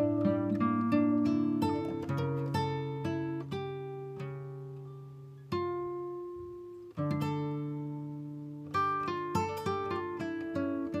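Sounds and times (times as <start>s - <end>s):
plucked acoustic guitar chords: 0.0s - 11.0s.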